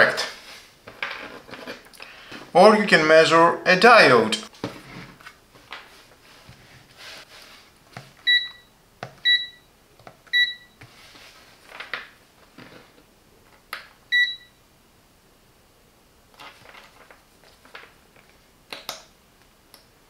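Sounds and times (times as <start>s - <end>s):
short electronic beeps: 10.4s - 10.8s, 14.1s - 14.5s.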